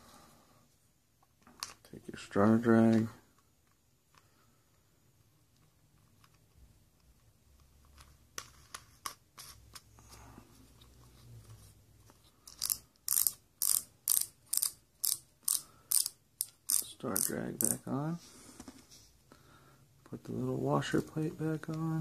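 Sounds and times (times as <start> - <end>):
fishing reel drag clicking: 12.6 - 17.8.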